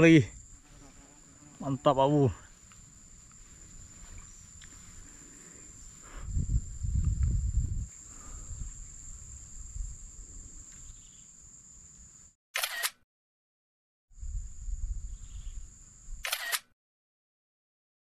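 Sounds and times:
wind rumble on microphone: 0:06.0 - 0:11.0, 0:14.2 - 0:16.2
sharp click: 0:12.6 - 0:13.0, 0:16.2 - 0:16.7.

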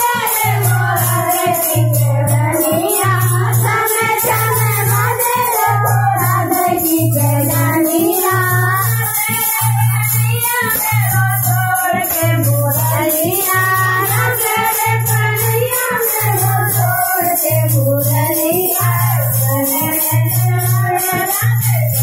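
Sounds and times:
devotional singing: 0:00.0 - 0:22.0
jingling shaker percussion: 0:00.0 - 0:22.0
low pulsing beat: 0:00.1 - 0:09.0.

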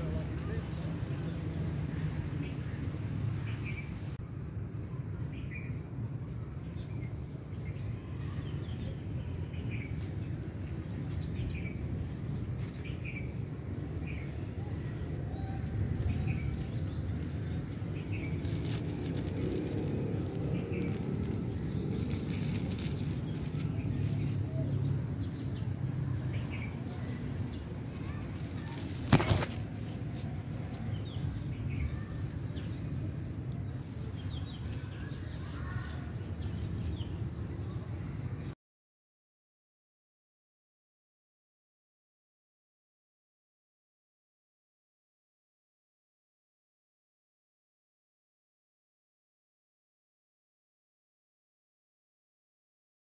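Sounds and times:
small birds chirping: 0:00.0 - 0:04.2, 0:04.9 - 0:38.6
steady low rumble: 0:09.0 - 0:35.3.

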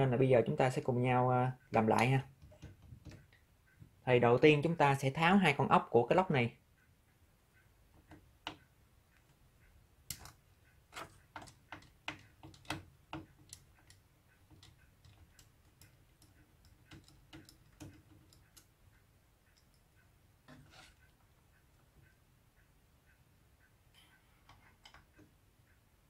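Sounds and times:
screwdriver clicking on metal: 0:10.1 - 0:18.7.

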